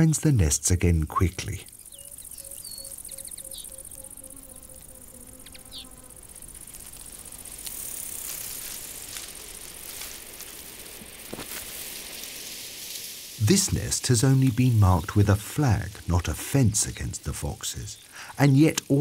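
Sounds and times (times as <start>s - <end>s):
high-pitched insect buzz: 1.6s - 16.0s.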